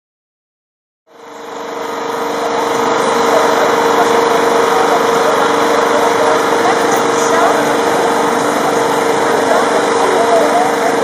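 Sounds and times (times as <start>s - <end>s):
engine drone: 1.1s - 11.0s.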